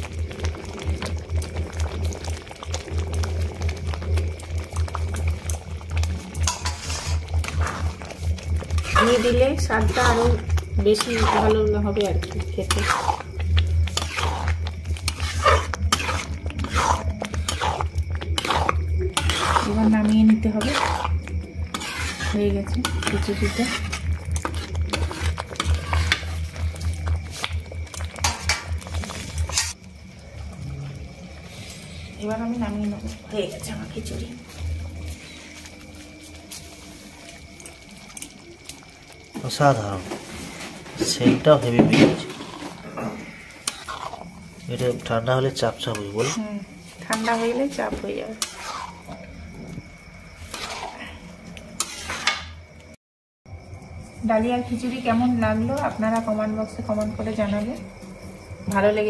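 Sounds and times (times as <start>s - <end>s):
thick food bubbling in pot: 0.0s - 59.0s.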